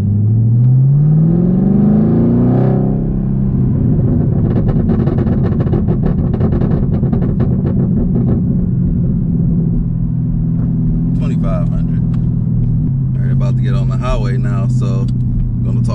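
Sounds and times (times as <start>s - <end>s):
car engine revving: 0.0s - 15.9s
exhaust pops and crackles: 3.0s - 15.9s.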